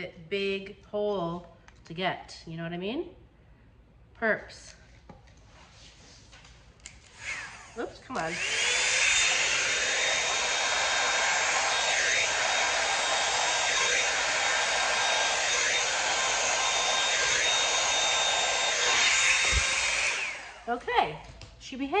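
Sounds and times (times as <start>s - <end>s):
hairdryer blowing air: 6.9s - 20.8s.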